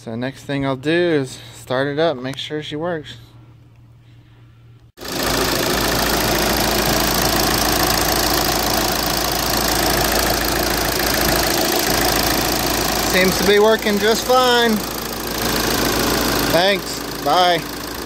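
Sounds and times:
diesel engine idling: 5.0 - 18.0.

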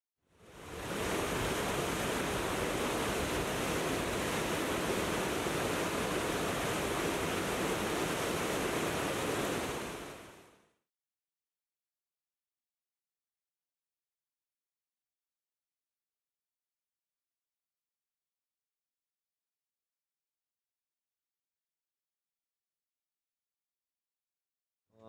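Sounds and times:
steady water-like rushing: 0.3 - 10.7.

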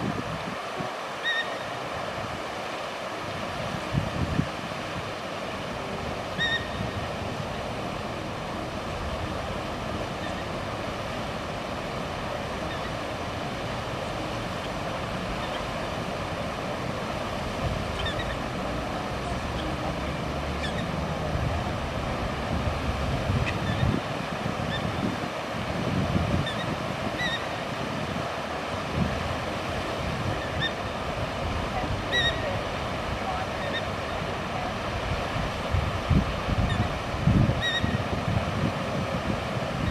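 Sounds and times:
fountain water jets splashing: 0.0 - 39.9.

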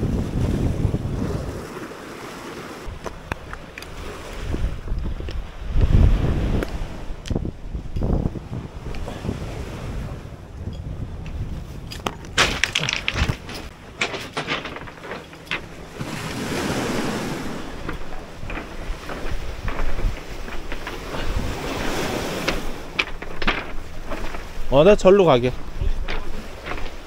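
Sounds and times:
wind buffeting microphone: 0.0 - 1.9, 2.8 - 27.0
small waves washing ashore: 0.0 - 7.3, 12.4 - 27.0
footsteps on pebbles: 11.6 - 27.0.

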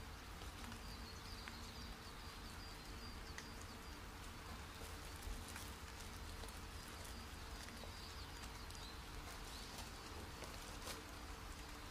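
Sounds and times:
background hiss: 0.0 - 11.9
faint clicks: 3.3 - 4.3.

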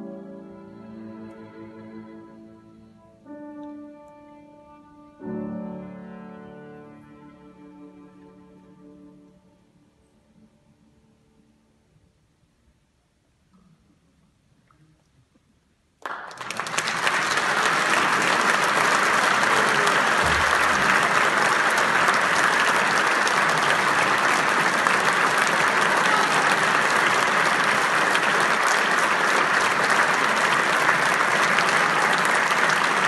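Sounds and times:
audience applauding: 16.0 - 33.0.

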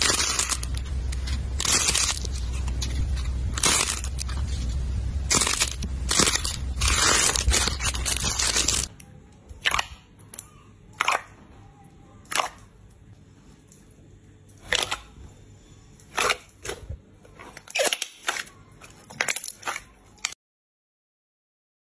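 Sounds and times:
crunchy slime crunching: 0.0 - 8.9, 9.5 - 11.5, 12.2 - 13.0, 14.6 - 15.3, 15.9 - 20.4
jelly slime popping: 9.6 - 11.4, 16.0 - 20.4.

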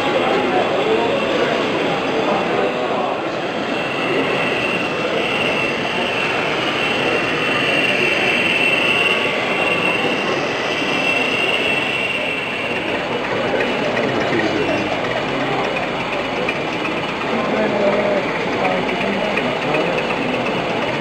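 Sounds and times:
background hubbub: 0.0 - 21.0
high whine: 0.0 - 21.0
model train diesel sound: 0.0 - 21.0.

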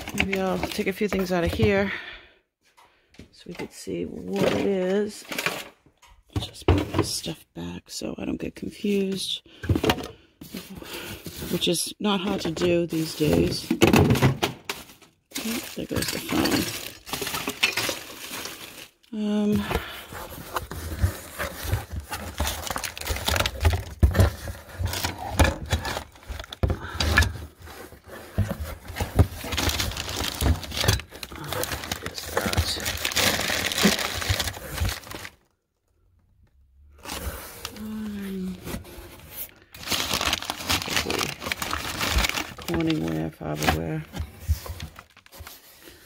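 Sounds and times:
newspaper crinkling and rustling: 19.8 - 26.6, 27.6 - 35.5, 37.0 - 46.0.

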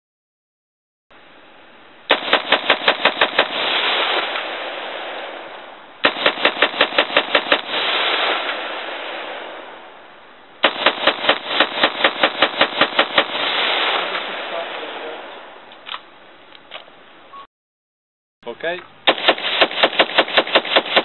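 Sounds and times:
rifle firing rapidly: 2.1 - 3.7, 6.0 - 7.9, 10.6 - 14.0, 19.1 - 21.0.

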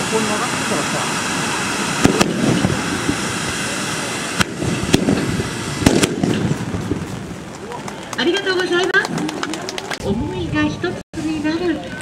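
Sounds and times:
fireworks rushing hiss: 0.0 - 8.2
firework cracks: 1.8 - 3.4, 4.2 - 8.4.

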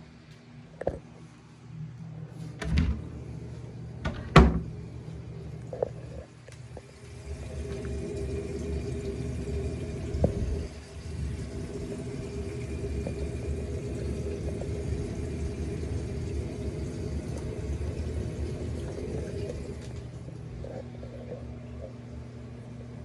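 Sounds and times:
circulating water rumble: 1.1 - 23.0
pump motor hum: 2.7 - 23.0.

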